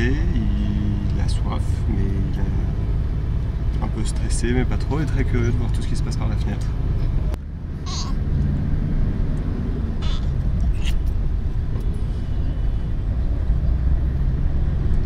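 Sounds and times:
car cabin road rumble: 0.0s - 15.0s
brief high-pitched sounds: 7.9s - 8.2s.

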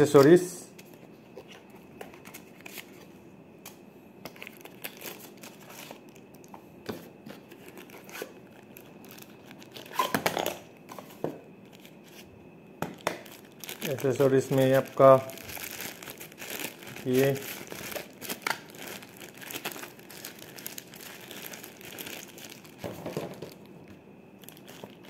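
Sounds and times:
packaging rustling: 4.3s - 6.5s, 7.2s - 10.2s, 11.0s - 12.3s, 12.9s - 23.7s, 24.4s - 25.0s.

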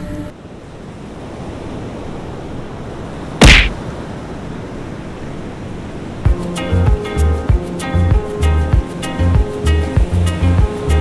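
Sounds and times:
surf breaking on beach: 0.7s - 6.4s
sharp thump: 3.4s - 3.8s.

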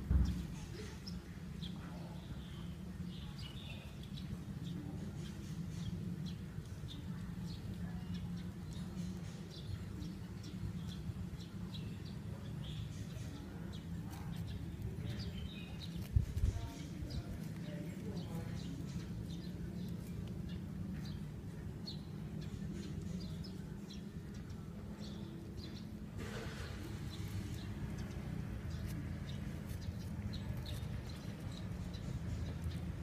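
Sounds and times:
steady low rumble: 26.0s - 33.0s.

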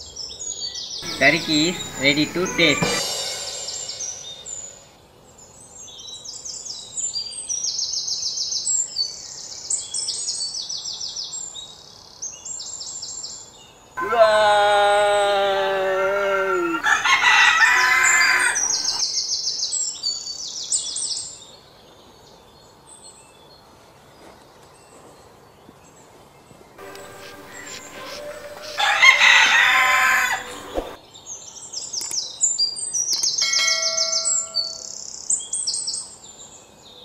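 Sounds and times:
man shouting: 1.0s - 3.1s, 14.0s - 17.1s
high-pitched chirping trills: 1.0s - 5.0s, 16.8s - 19.0s, 26.8s - 31.0s.

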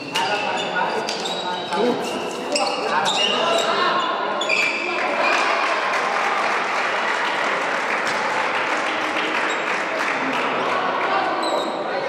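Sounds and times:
spectators applauding: 4.9s - 11.4s.

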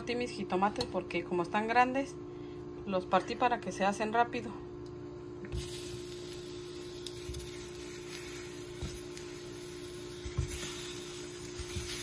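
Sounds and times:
tomatoes sizzling on hot griddle: 5.5s - 12.0s.

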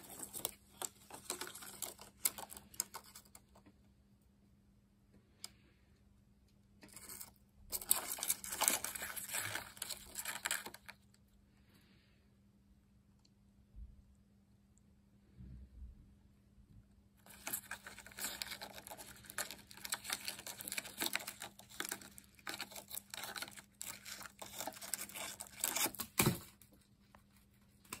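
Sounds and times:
beetles scraping on cardboard: 17.3s - 26.2s.

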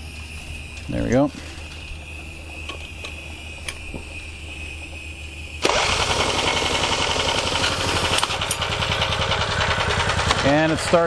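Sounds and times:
faint steady hum: 0.0s - 5.7s
small generator engine running: 0.0s - 11.0s.

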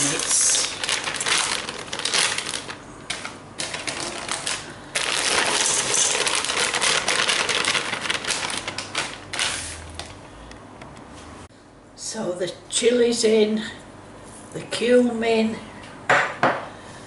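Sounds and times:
pieces rattling into a metal pot: 0.0s - 9.2s
plastic bag crinkling: 0.0s - 10.2s.

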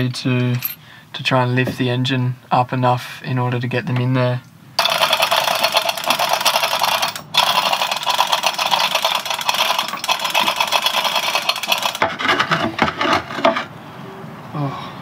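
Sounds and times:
chain hoist rattling: 4.8s - 12.0s.

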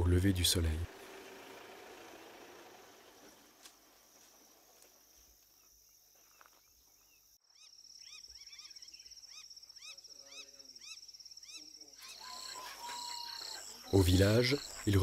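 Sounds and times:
insect trill: 1.8s - 15.0s
bird chirps: 5.6s - 15.0s.

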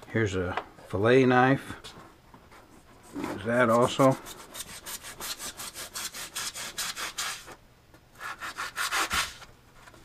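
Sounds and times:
knife sawing through foam: 3.5s - 7.5s, 8.2s - 9.4s.

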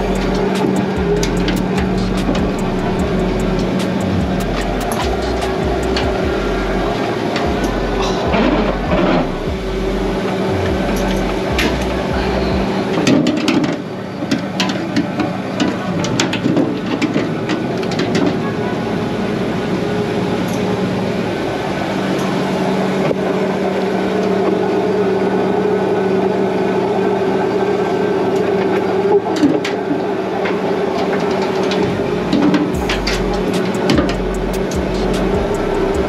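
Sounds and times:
deep low thumping: 0.0s - 12.9s, 32.8s - 36.0s
gear clicking and knocking: 0.0s - 18.6s, 30.5s - 36.0s
boat engine and machinery hum: 0.0s - 36.0s.

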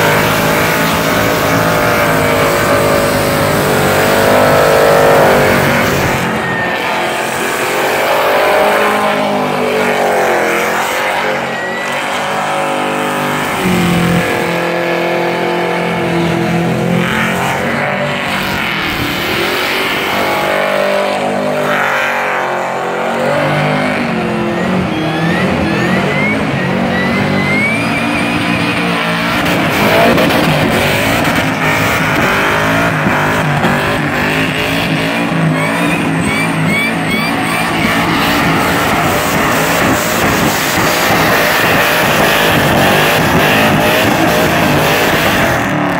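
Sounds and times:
car engine revving hard: 0.0s - 45.9s.

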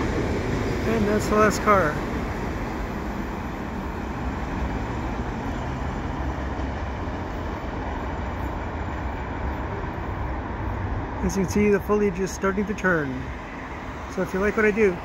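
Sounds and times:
freight train cars rumbling on rails: 0.0s - 15.0s.

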